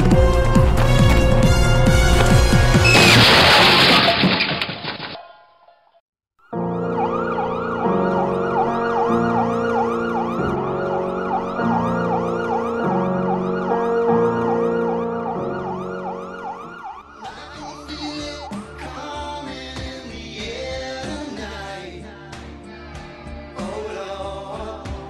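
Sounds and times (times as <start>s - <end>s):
emergency siren yelping: 6.6s - 19.6s.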